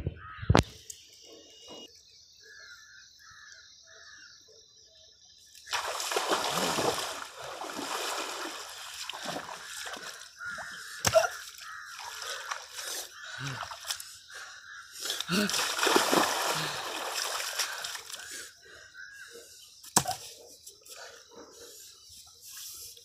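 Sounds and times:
water splashing as person wades: 5.7 - 14.2, 15.2 - 18.3.

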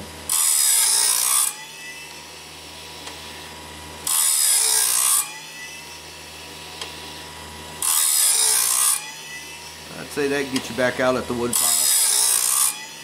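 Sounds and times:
grinding wheel hissing on metal: 6.7 - 12.8.

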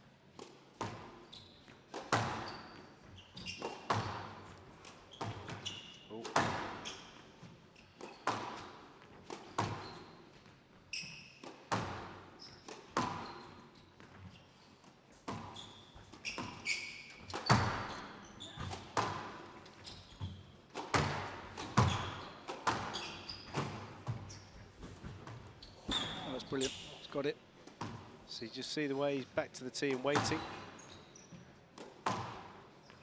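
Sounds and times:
shoes squeaking on court floor: 0.3 - 33.0
squash ball hits echoing: 1.9 - 2.7, 3.4 - 4.6, 6.2 - 6.9, 8.0 - 10.1, 11.4 - 13.5, 16.2 - 19.6, 20.7 - 24.3, 30.1 - 30.7, 31.8 - 32.6.

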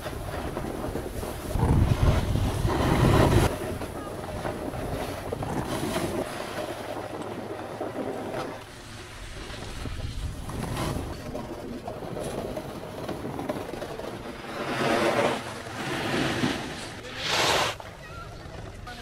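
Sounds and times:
wind buffeting microphone: 0.0 - 6.3.

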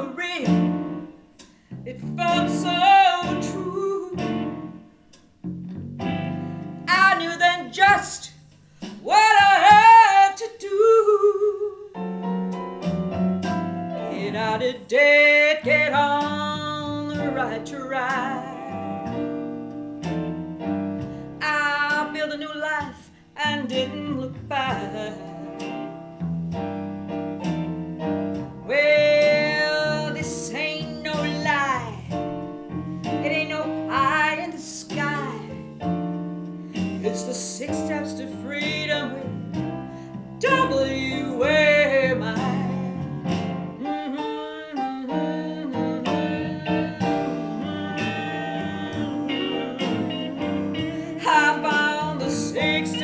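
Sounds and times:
woman singing: 0.0 - 1.0, 1.9 - 4.6, 6.9 - 8.4, 9.0 - 12.0, 14.0 - 19.2, 21.4 - 25.8, 28.6 - 32.2, 33.1 - 35.7, 36.8 - 39.6, 40.4 - 43.2, 43.8 - 53.0
instrumental backing music: 0.0 - 53.0.

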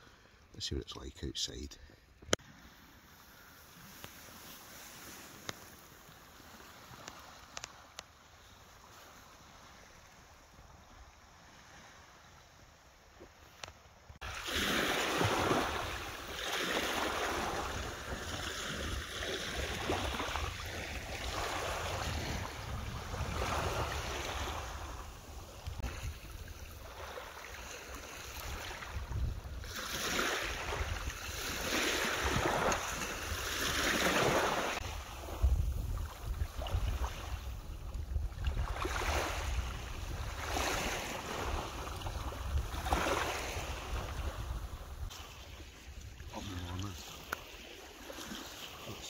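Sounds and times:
waves washing over pebble beach: 14.2 - 26.0, 29.7 - 36.4, 38.7 - 45.7
low wind rumble on microphone: 19.6 - 26.8, 28.4 - 29.7, 34.8 - 45.1.

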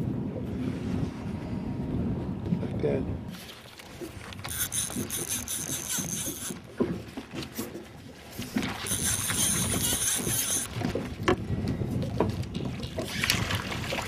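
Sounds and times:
fishing reel whirring: 4.3 - 6.7, 8.8 - 10.8.

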